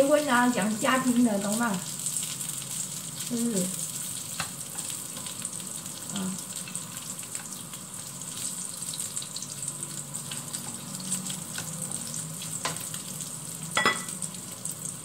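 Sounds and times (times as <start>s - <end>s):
meat sizzling in a pan: 0.0s - 15.0s
metal tongs clinking on pan: 13.8s - 14.2s.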